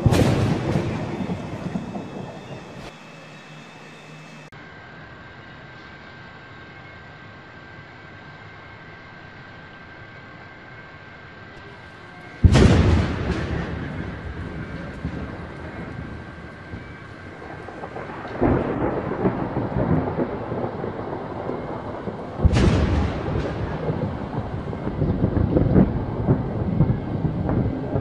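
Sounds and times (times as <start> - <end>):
sharp thunder crack: 0.0 - 3.0, 12.4 - 28.0
rolling thunder rumble: 0.0 - 4.0, 11.7 - 28.0.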